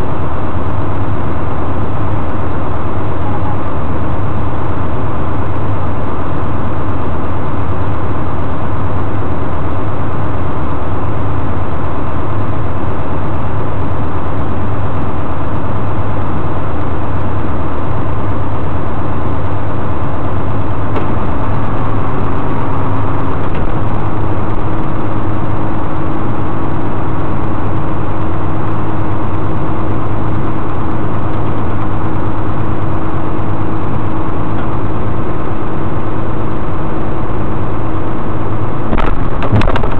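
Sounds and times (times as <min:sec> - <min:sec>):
tow truck engine humming: 0:00.0 - 0:39.9
higher steady hum: 0:20.8 - 0:27.3, 0:38.6 - 0:39.9.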